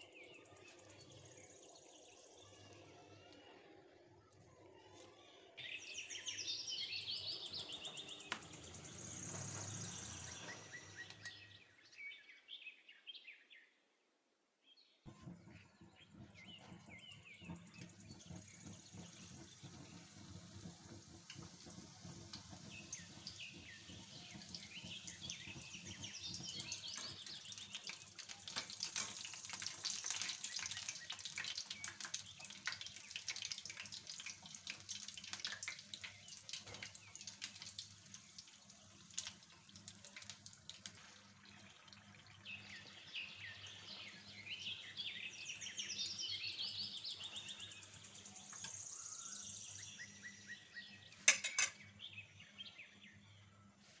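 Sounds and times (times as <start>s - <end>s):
food deep-frying in hot oil: 5.6s - 11.6s, 15.1s - 54.0s
wire skimmer clinking on pan: 25.9s - 34.8s, 51.2s - 51.9s.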